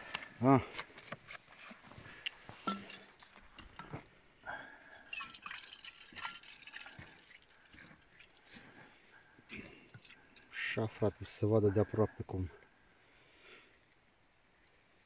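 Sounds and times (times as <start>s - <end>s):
wine gurgling into a canteen: 5.0s - 8.6s.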